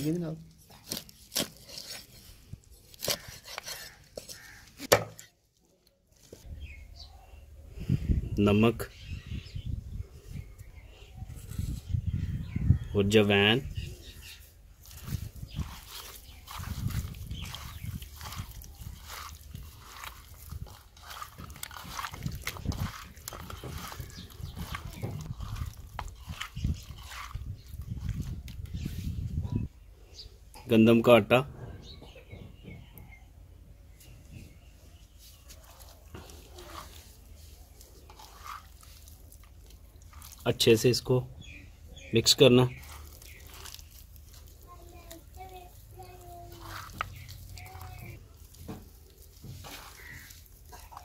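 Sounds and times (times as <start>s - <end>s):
hands mixing raw fish squelching: 0.0s - 4.9s, 14.0s - 29.2s, 34.6s - 51.0s.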